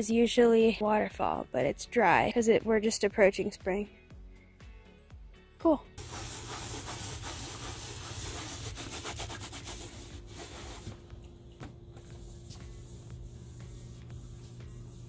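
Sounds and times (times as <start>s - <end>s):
cloth scrubbing a pan: 6.0s - 11.1s.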